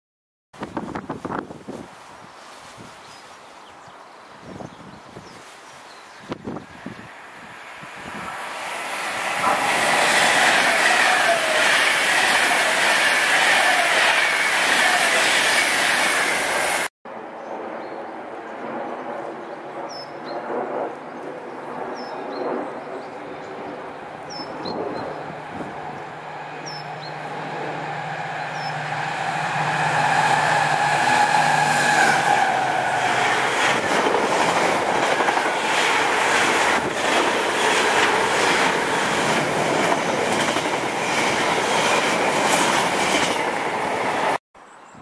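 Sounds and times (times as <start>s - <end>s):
diesel locomotive passing: 6.6s - 16.9s, 23.1s - 44.4s.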